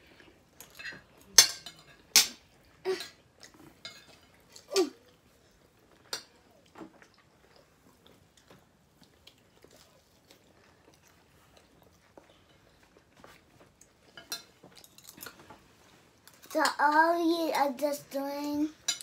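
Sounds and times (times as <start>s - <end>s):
cutlery clicking against plates: 0.6s - 2.4s, 3.0s - 4.9s, 14.1s - 15.5s
faint chewing: 2.5s - 16.6s.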